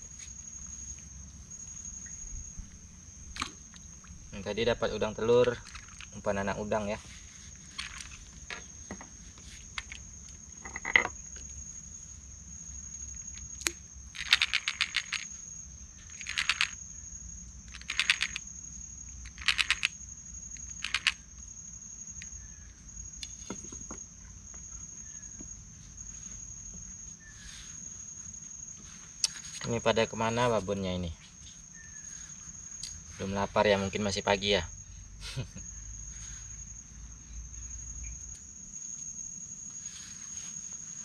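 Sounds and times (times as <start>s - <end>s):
high-pitched insect drone: 0.0s - 41.0s
rapid clicking bursts: 14.1s - 15.3s, 16.1s - 16.8s, 17.7s - 18.5s, 19.2s - 20.0s, 20.6s - 21.2s.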